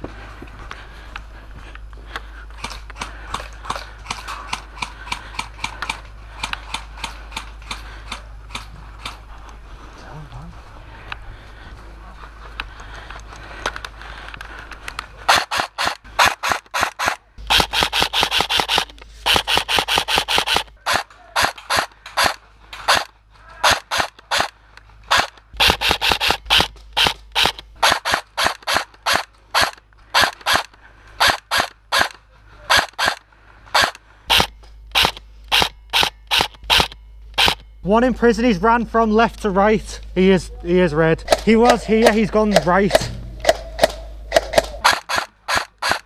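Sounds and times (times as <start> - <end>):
airsoft rifle shots: 15.3 - 37.7, 41.2 - 46.0.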